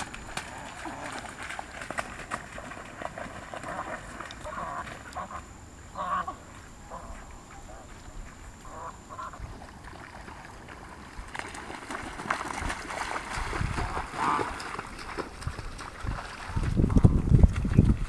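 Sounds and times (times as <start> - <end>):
wings beating through water: 0.0 - 5.4, 8.6 - 18.0
geese honking: 3.5 - 9.6.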